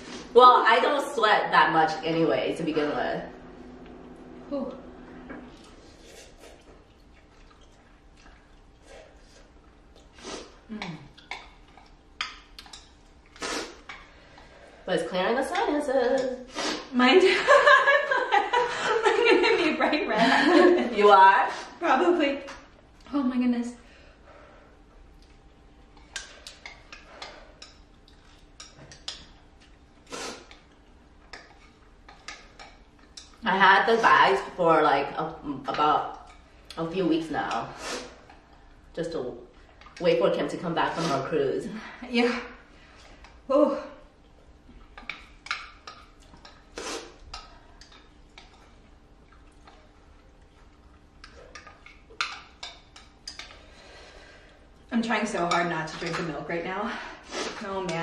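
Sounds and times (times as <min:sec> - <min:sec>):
slurping noodles: 0:13.3 - 0:13.9, 0:46.7 - 0:47.2.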